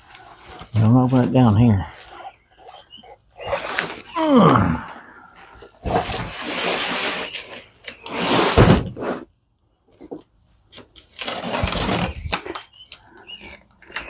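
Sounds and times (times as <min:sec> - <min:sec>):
cardboard box scraping and rustling: 0:05.7 - 0:09.0, 0:11.1 - 0:12.4
knife scraping cardboard: 0:05.8 - 0:08.8, 0:10.7 - 0:12.3.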